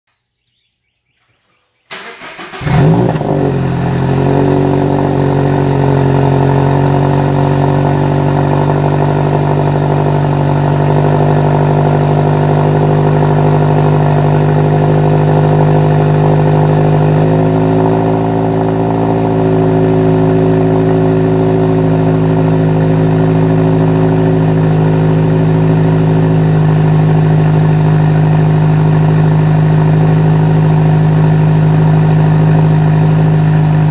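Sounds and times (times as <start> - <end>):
car engine cranking: 1.8 - 5.1
car engine idling: 1.8 - 33.9.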